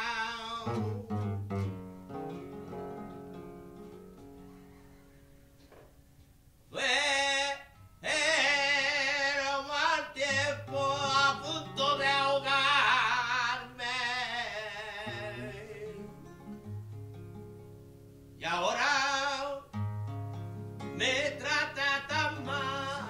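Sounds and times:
nylon-string guitar: 0.0s - 23.0s
man singing wavering phrases: 6.7s - 16.2s, 21.0s - 23.0s.

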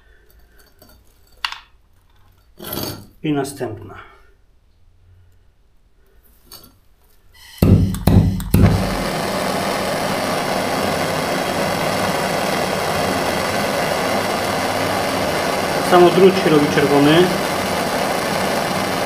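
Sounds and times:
gas torch flame hissing: 7.4s - 19.0s
gas torch igniting clicks: 7.4s - 19.0s.

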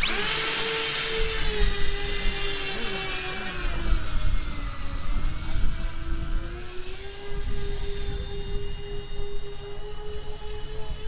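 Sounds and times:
model plane electric motors whining: 0.0s - 11.0s
wind rumbling on microphone: 1.0s - 11.0s.

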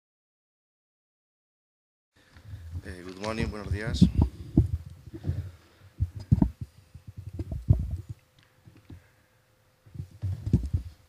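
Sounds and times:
faint steady hum: 2.2s - 11.0s
handling noise thumps and knocks: 3.9s - 8.2s, 10.0s - 11.0s.

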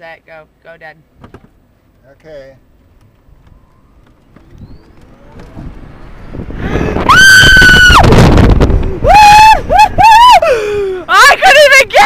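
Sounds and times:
wind and road noise: 0.0s - 12.0s
passenger screaming: 5.0s - 12.0s.

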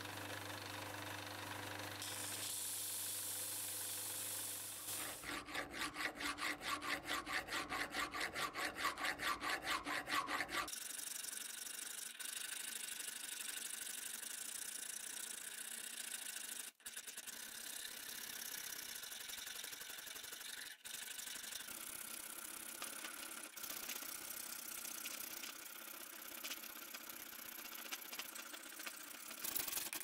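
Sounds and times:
disc sander grinding metal: 4.4s - 10.7s
hand file rasping on metal: 4.8s - 10.8s.

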